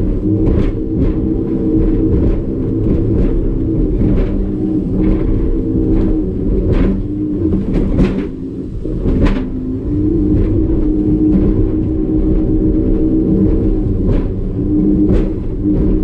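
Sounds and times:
hull banging on waves: 0.0s - 16.0s
outboard motor running hard: 0.0s - 16.0s.

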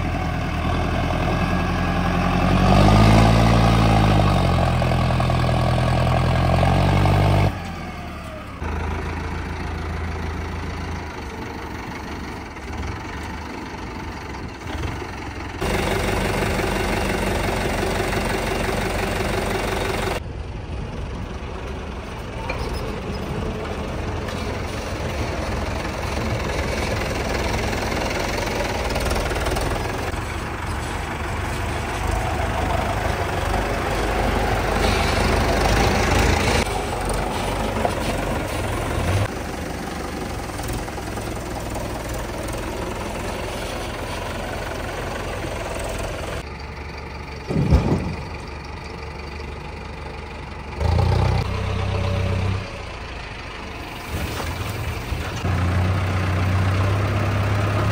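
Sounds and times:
diesel engines running: 0.0s - 57.9s
loud thump: 47.5s - 48.3s.

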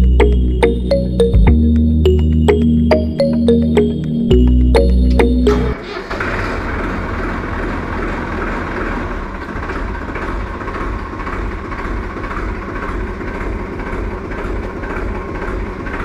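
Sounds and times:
tractor engine running: 3.9s - 16.0s.

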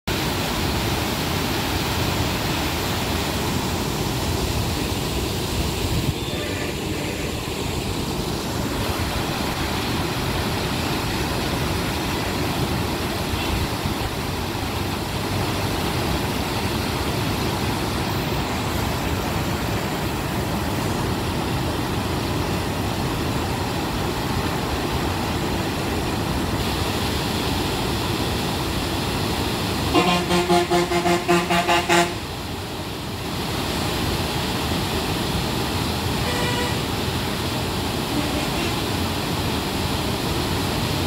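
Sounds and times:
water gushing through sluices: 0.1s - 29.9s.

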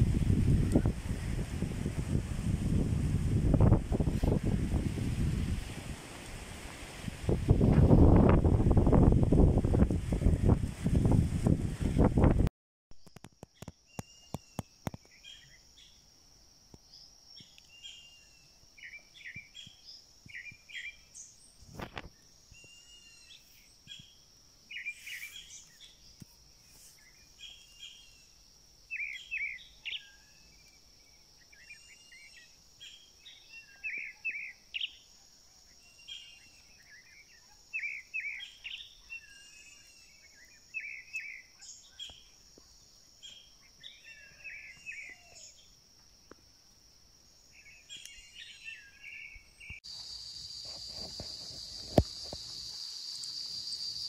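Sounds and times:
songbirds chirping and trilling: 16.8s - 46.4s, 47.4s - 54.0s
high insect drone: 49.8s - 54.0s.

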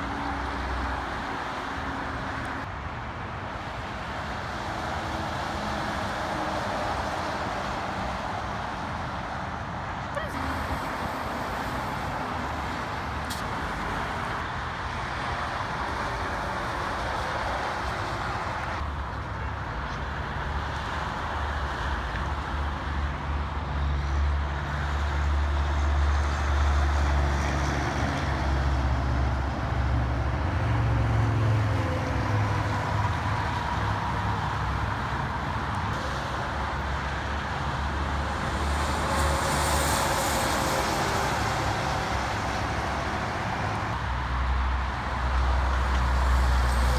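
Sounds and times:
dump truck engine rumble: 0.0s - 21.5s
highway traffic: 0.0s - 46.9s.

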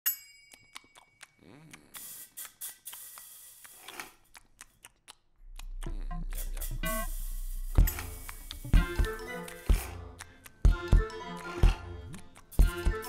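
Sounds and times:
dry clicks and snips: 0.8s - 6.7s, 9.4s - 13.0s
deep bass tone: 5.4s - 9.2s
hissing swooshes: 6.2s - 8.8s.

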